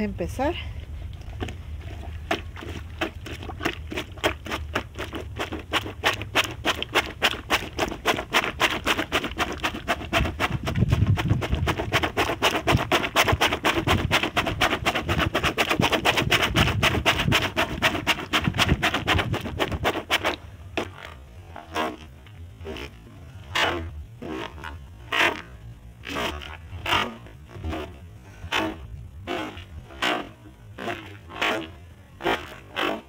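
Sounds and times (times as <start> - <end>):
plunger sloshing laundry in bucket: 1.2 - 21.1.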